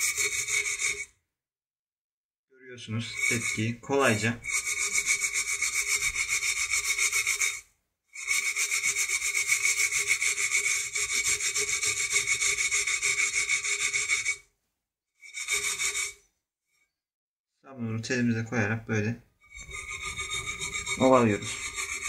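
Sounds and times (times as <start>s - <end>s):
steel wool scrubbing a pan: 0.0s - 1.1s, 2.9s - 7.6s, 8.2s - 14.4s, 15.2s - 16.2s, 19.5s - 22.0s.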